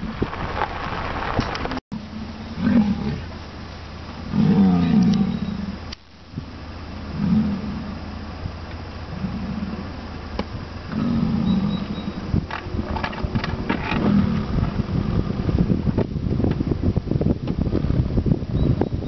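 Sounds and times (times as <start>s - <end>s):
wind gusts on microphone: 0.0s - 1.8s, 2.5s - 19.0s
bison bellowing: 2.0s - 3.4s, 4.0s - 6.0s, 6.9s - 8.4s, 9.0s - 13.1s.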